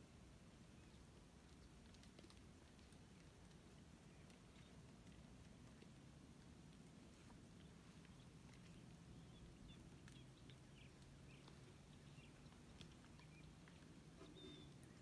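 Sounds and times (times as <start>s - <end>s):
low steady hum: 0.0s - 15.0s
faint bird chirps: 7.0s - 15.0s.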